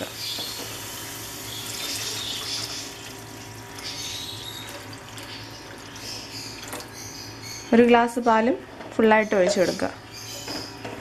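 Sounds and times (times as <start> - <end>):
grated carrot sizzling in a pan: 0.0 - 3.2
milk hissing in hot pan: 0.0 - 6.5.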